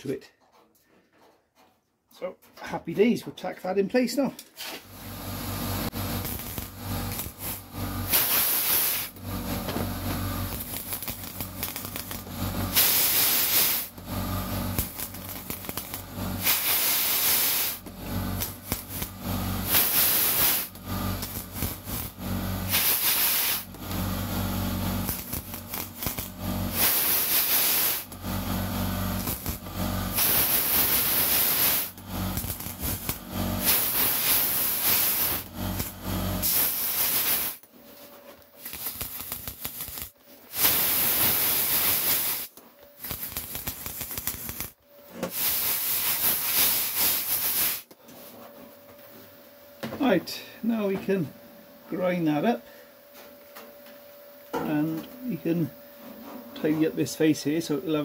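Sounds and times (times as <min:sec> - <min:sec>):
low welder hum: 0:02.9 - 0:58.0
welding arc crackle: 0:04.5 - 0:37.7, 0:38.3 - 0:48.0.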